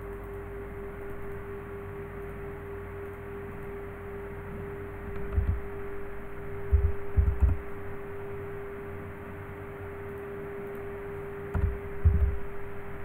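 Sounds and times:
electrical hum: 0:00.0 - 0:13.0
dull low thumps: 0:06.7 - 0:07.6, 0:11.6 - 0:12.5.

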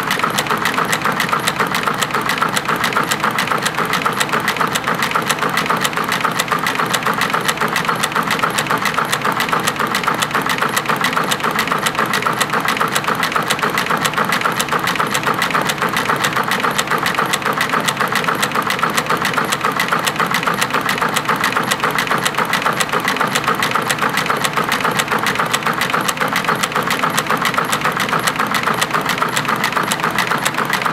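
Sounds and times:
loom clattering: 0:11.6 - 0:30.9.

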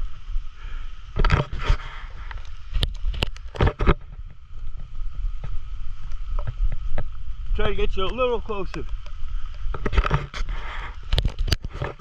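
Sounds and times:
wind rumble on microphone: 0:01.1 - 0:12.0.

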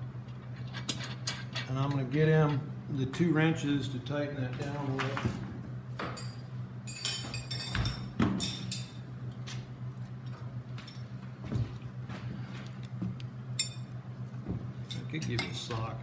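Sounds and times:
metal wrenches clinking: 0:00.5 - 0:02.6.

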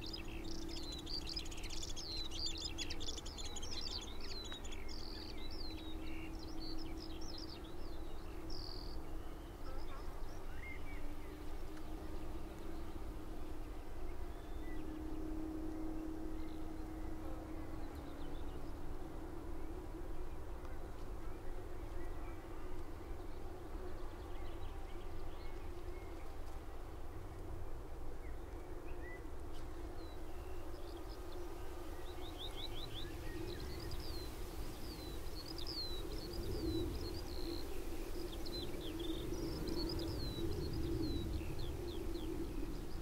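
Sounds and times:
skylarks singing: 0:00.0 - 0:18.8, 0:28.2 - 0:43.0.

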